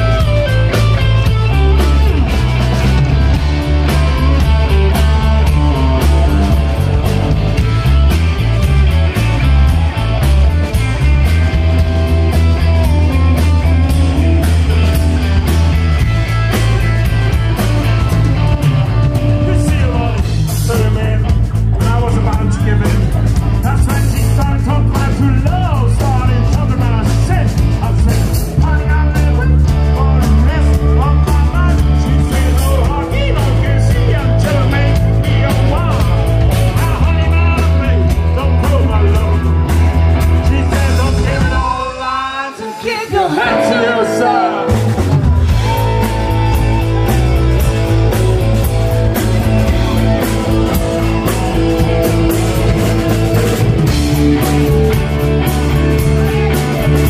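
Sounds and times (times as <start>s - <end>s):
rock and roll band playing: 0.0s - 57.0s
person singing: 40.2s - 48.6s.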